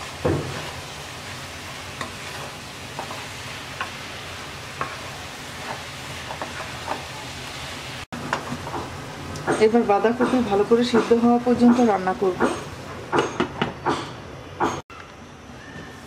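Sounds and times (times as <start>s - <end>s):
vegetables sizzling: 0.0s - 13.0s
spatula scraping pan: 1.6s - 4.0s, 4.7s - 7.3s.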